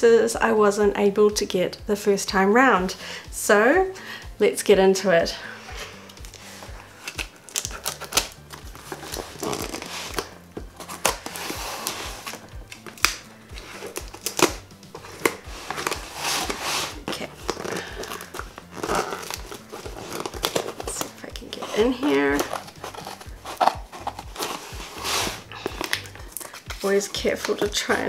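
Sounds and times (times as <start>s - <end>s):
music with steady bass beat: 5.7s - 20.1s
tape crinkling: 6.0s - 28.0s
scissors snipping tape: 7.0s - 21.2s, 22.3s - 24.6s.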